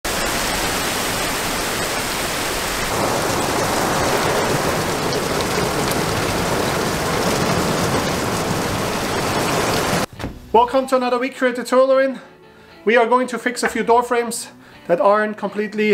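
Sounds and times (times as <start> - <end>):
heavy rain pouring: 0.0 - 10.1
raindrop taps: 2.9 - 10.1.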